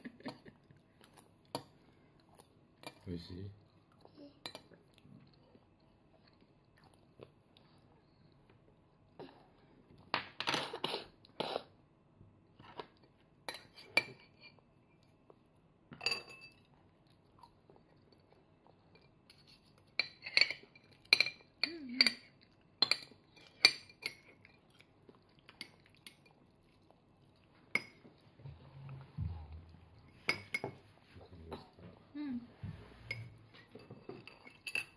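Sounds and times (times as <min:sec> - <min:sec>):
cutlery clinking on dishes: 0:16.0 - 0:16.7, 0:18.9 - 0:24.7, 0:30.2 - 0:30.9, 0:33.0 - 0:34.9.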